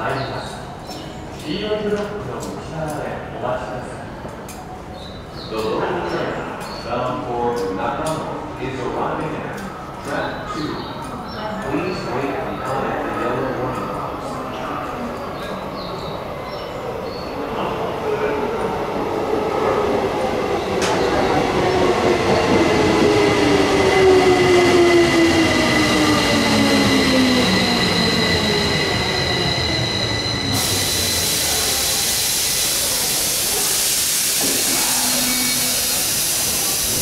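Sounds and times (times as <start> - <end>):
train inverter whining: 18.7 - 37.0
hiss of air: 30.6 - 37.0.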